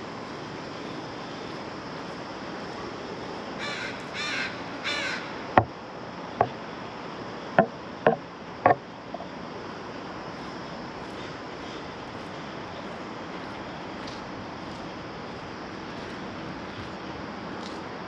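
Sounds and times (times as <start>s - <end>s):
crow cawing: 3.6s - 5.4s
sharp knocks: 7.6s - 8.8s.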